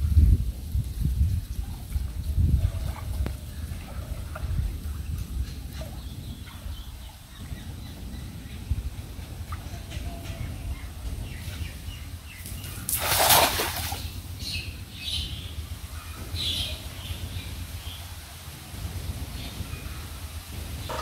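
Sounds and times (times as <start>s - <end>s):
water sloshing: 12.4s - 14.4s
net splashing into water: 12.8s - 14.1s.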